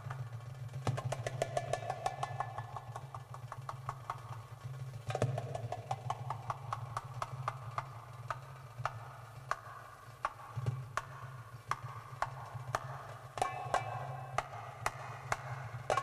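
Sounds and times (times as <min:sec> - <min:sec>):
low steady drone: 0:11.2 - 0:16.0.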